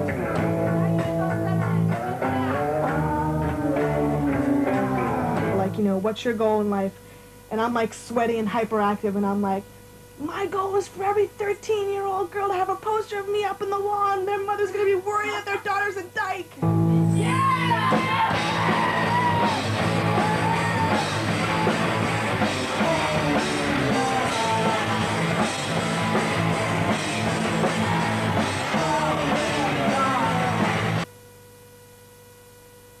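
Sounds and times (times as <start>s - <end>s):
punk rock with guitar: 0.0s - 5.7s, 16.6s - 31.1s
faint steady hum: 0.0s - 33.0s
person yelling singing: 0.8s - 5.6s, 17.0s - 31.0s.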